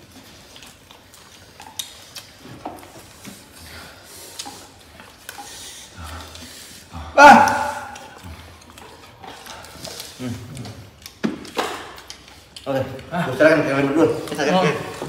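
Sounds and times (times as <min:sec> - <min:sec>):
people chewing food: 0:00.0 - 0:15.0.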